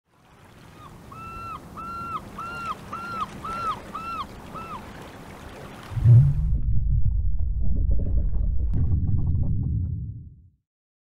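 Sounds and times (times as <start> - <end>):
sea waves: 0.0 - 6.7
gull crying: 0.8 - 4.8.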